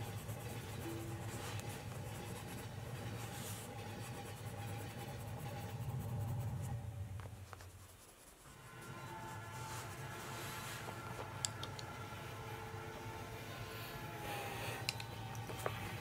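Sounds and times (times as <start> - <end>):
pencil scratching on paper: 0.0 - 6.8, 7.4 - 11.4
low steady hum: 0.0 - 16.0.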